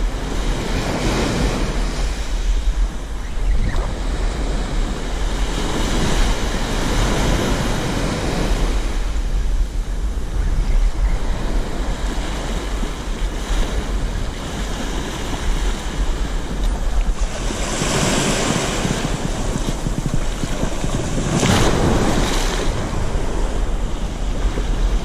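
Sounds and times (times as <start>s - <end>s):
wind buffeting microphone: 0.0s - 25.0s
ocean surf breaking: 11.4s - 25.0s.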